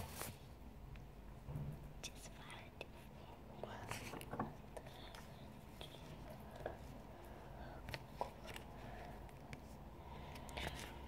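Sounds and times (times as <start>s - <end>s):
paper booklet rustling: 0.0s - 0.5s, 3.8s - 6.9s, 7.8s - 11.0s.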